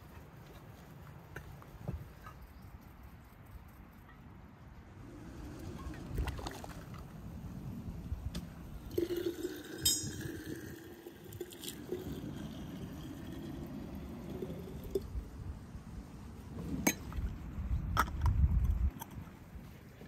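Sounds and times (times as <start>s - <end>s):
liquid pouring into jar: 8.8s - 15.1s
glass clink: 9.6s - 10.7s.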